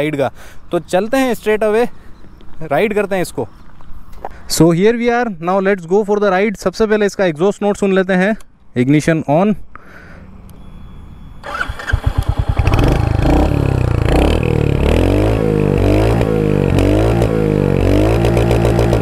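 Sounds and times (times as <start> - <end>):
motorcycle starter cranking: 11.4 - 13.4
motorcycle engine idling and revving: 11.4 - 19.0.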